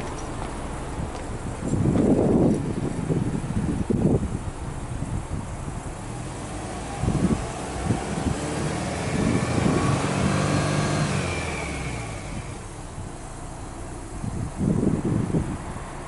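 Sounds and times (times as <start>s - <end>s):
car engine revving: 4.8s - 16.0s.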